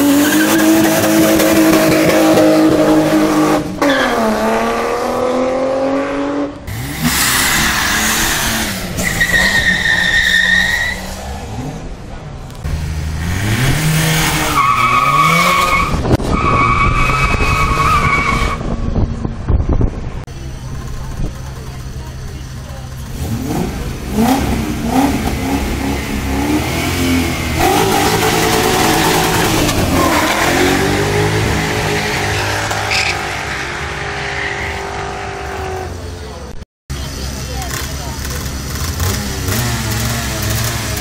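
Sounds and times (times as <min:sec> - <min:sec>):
rally car engine revving: 0:00.0 - 0:19.5, 0:20.4 - 0:41.0
tyres squealing: 0:09.0 - 0:11.2, 0:27.6 - 0:35.8.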